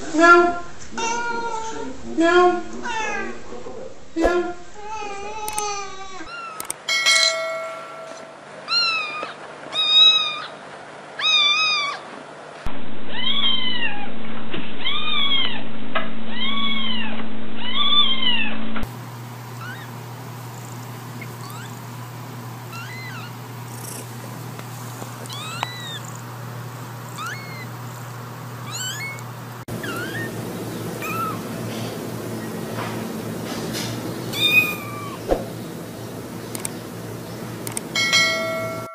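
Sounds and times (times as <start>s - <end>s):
kittens meowing: 8.7s - 10.6s, 11.2s - 12.1s, 19.6s - 20.0s, 21.2s - 21.8s, 22.7s - 24.1s, 25.2s - 26.3s, 27.0s - 28.0s, 28.6s - 31.6s, 34.3s - 35.3s
steady low hum: 18.5s - 38.9s.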